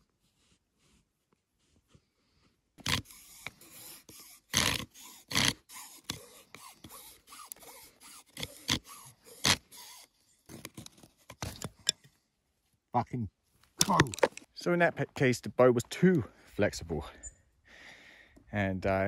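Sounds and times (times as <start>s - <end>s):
bow drill spindle squeaking: 2.8s - 12.0s.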